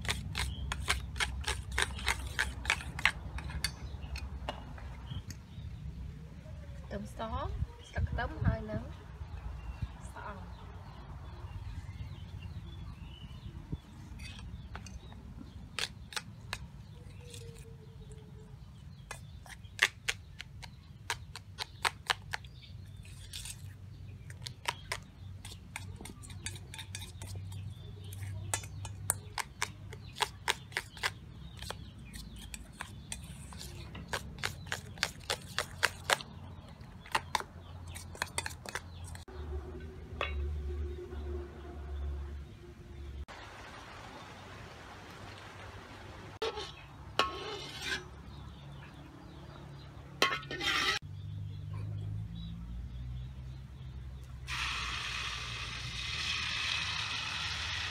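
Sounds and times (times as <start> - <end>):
metal spoon clinking against bowl: 25.4 - 31.7.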